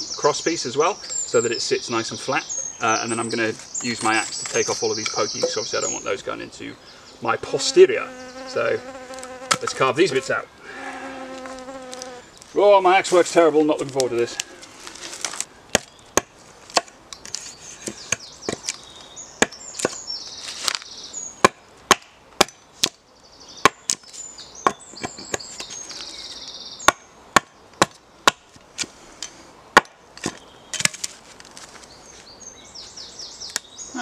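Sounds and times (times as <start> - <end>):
axe chopping wood: 15.7 - 17.0, 19.4 - 20.0, 21.4 - 23.0, 23.6 - 25.5, 26.9 - 28.5, 29.8 - 31.1.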